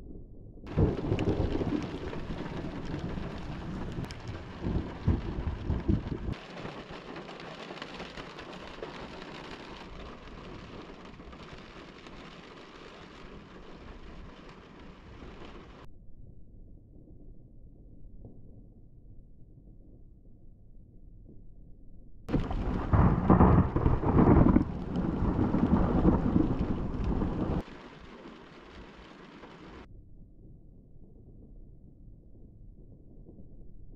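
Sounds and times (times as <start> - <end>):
thunder rumbling: 0.0 - 15.9, 22.3 - 29.9
heavy rain hissing: 0.7 - 15.8, 22.3 - 29.9.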